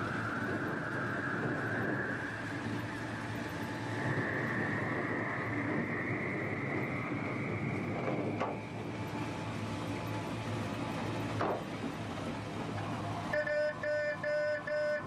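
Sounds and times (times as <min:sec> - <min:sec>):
truck driving with whine: 0:00.0 - 0:15.0.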